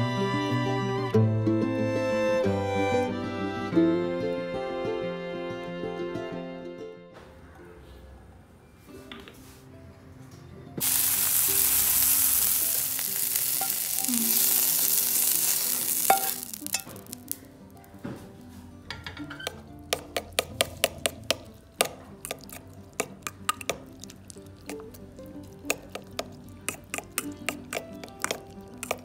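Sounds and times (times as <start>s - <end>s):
food sizzling in hot oil: 10.8s - 17.8s, 22.2s - 29.0s
utensil clinking on ceramic bowl: 16.0s - 17.2s, 18.9s - 29.0s.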